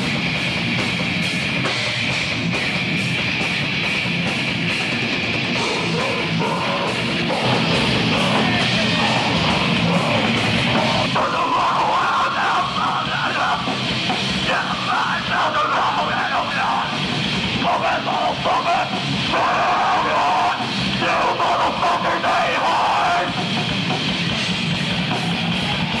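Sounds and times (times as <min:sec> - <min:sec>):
distorted electric guitar: 0:00.0 - 0:26.0
drum kit: 0:00.0 - 0:26.0
vocalist singing: 0:05.6 - 0:23.4.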